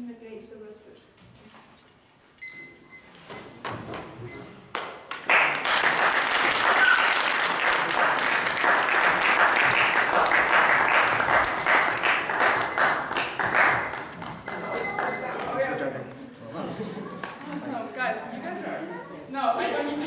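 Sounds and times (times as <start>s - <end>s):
audience applauding: 4.7s - 15.7s.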